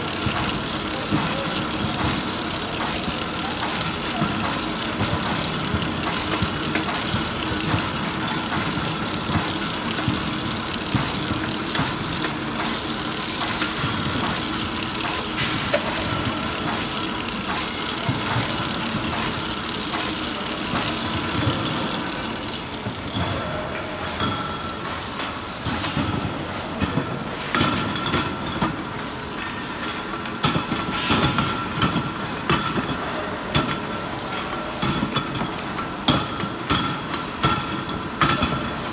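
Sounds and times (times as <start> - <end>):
labeling machine hum: 0.0 - 24.0
rapid clicking of cutter and conveyor: 0.0 - 38.9.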